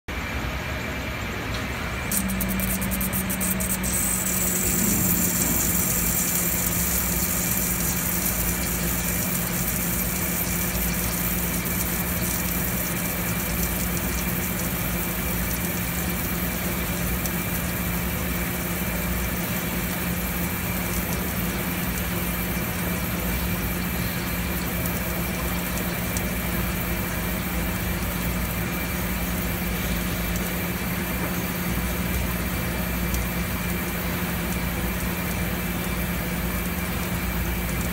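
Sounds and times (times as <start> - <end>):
machine humming: 0.1 - 37.9
even hiss: 2.1 - 15.2.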